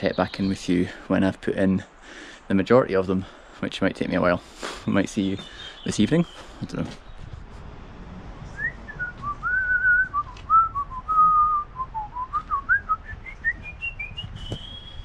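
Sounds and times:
person whistling a tune: 8.6s - 15.0s.

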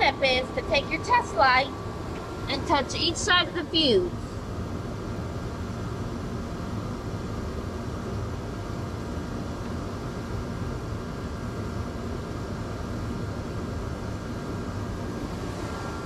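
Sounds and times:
faint steady hum: 0.0s - 16.0s
low rushing noise: 15.0s - 16.0s.

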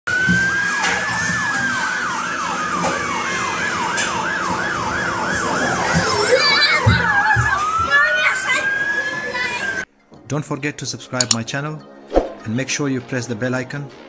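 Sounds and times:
toy electronic siren: 0.1s - 9.8s.

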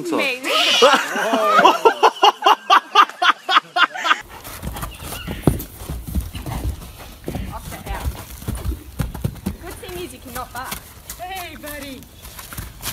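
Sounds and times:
laughter in rapid bursts: 0.8s - 4.2s
horse hoofbeats on dirt: 4.2s - 12.9s.

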